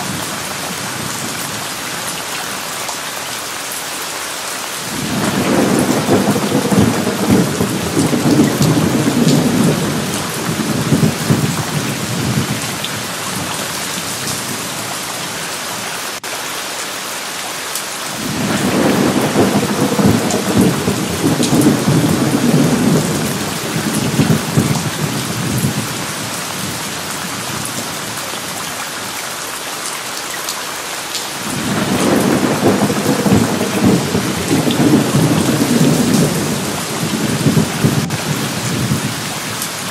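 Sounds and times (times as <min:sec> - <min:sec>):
steady rain: 0:00.0 - 0:39.9
rolling thunder: 0:04.9 - 0:14.8, 0:18.2 - 0:26.8, 0:31.4 - 0:39.9.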